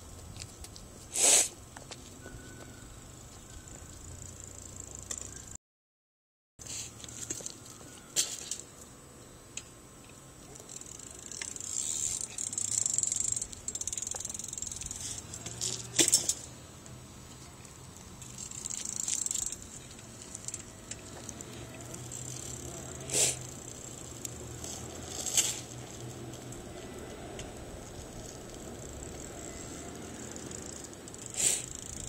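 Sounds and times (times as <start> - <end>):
bike tyres hissing on asphalt: 0.7 - 1.7, 6.6 - 7.3, 17.9 - 32.0
freewheel hub ticking: 10.6 - 16.2, 18.2 - 32.0.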